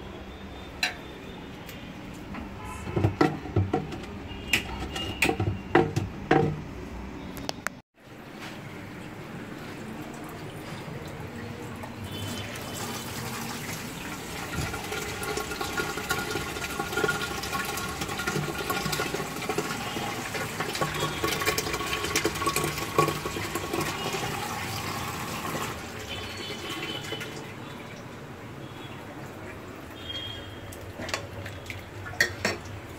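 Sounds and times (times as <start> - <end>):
water running: 8.8 - 32.9.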